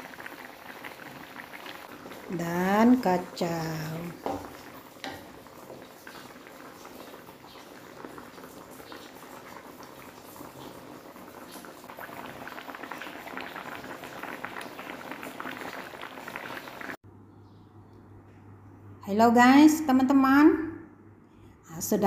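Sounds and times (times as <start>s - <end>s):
gravy bubbling in a wok: 0.0s - 17.0s.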